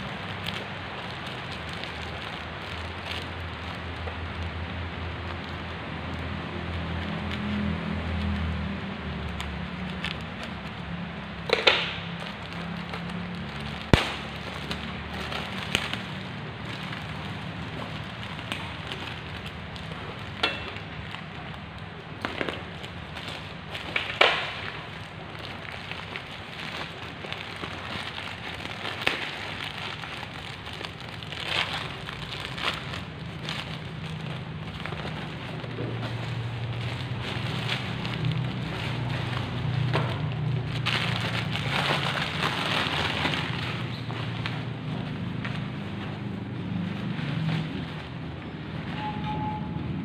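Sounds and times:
plastic bag crinkling: 0:00.0 - 0:49.0
sharp snap: 0:13.9 - 0:14.4.

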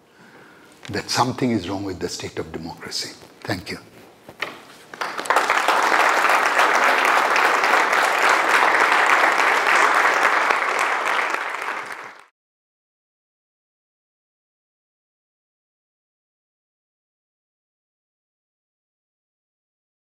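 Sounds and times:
audience applauding: 0:04.9 - 0:12.3.

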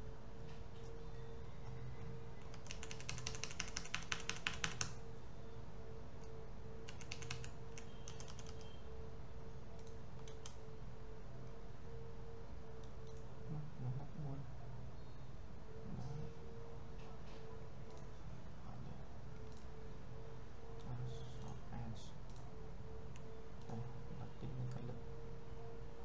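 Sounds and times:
faint hum: 0:00.0 - 0:26.0
computer keyboard typing: 0:01.6 - 0:05.0, 0:06.2 - 0:08.8, 0:09.8 - 0:10.7, 0:12.8 - 0:13.3, 0:17.8 - 0:18.1, 0:19.3 - 0:19.8, 0:22.2 - 0:23.8.

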